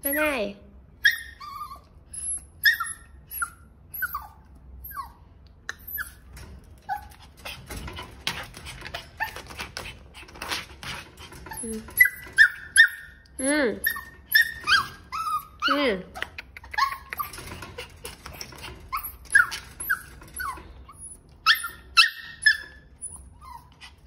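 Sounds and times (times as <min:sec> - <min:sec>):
puppy whining and yipping: 0:01.0 - 0:10.6, 0:11.2 - 0:24.0.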